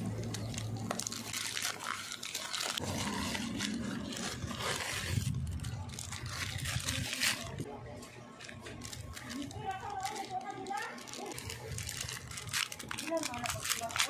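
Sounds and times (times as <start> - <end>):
plastic pouch crinkling: 0.0 - 7.7, 8.4 - 14.0
scissors cutting plastic: 0.0 - 7.7, 8.4 - 14.0
low hum: 0.0 - 10.0.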